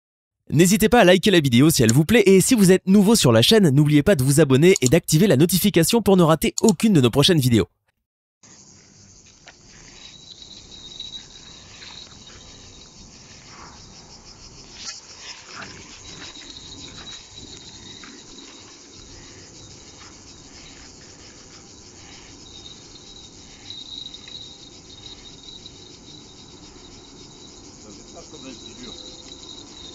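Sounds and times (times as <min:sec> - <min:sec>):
insect chorus: 0:08.4 - 0:29.9.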